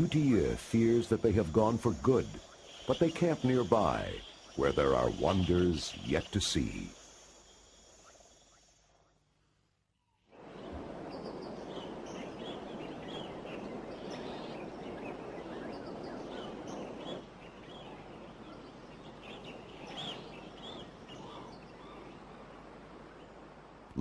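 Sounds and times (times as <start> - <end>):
bird chirps: 10.6 - 22.2.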